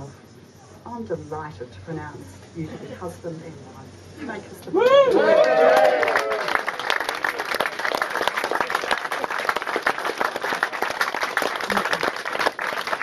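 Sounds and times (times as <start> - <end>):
crowd applauding: 5.0 - 13.0
close hand clapping: 5.1 - 13.0.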